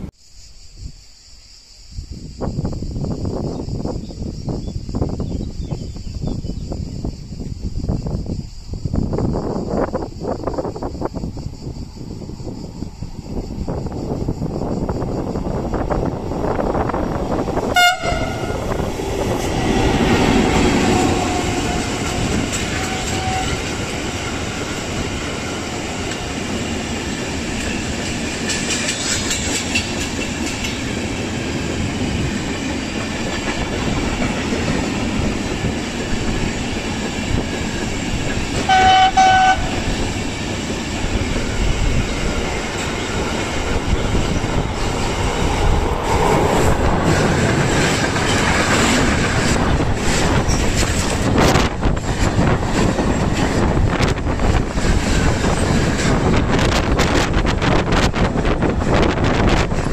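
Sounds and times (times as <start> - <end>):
train wheels rumbling and clattering: 2.2 - 59.9
locomotive horn blast: 17.7 - 18.8, 19.6 - 24.0, 38.6 - 39.9.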